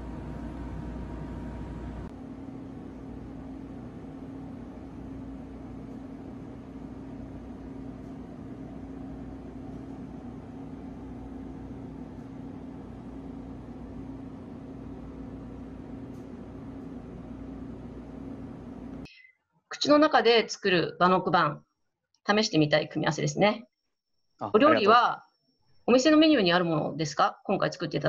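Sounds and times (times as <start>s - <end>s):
machine hum: 0.0s - 19.1s.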